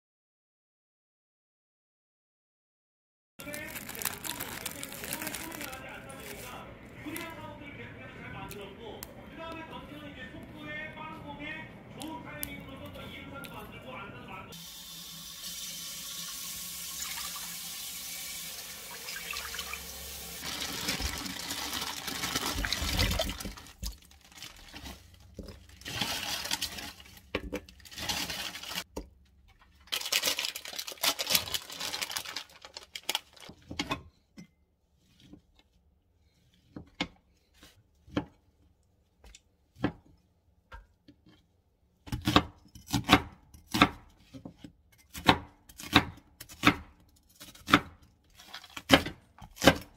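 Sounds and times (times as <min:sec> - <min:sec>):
water running from tap: 0:14.6 - 0:23.6
kitchen things clattering: 0:20.4 - 0:30.0
cleaver chopping on board: 0:45.1 - 0:46.9.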